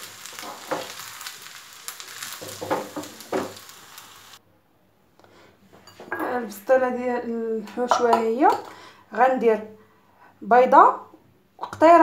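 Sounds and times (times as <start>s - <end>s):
food sizzling in frying pan: 0.0s - 4.4s.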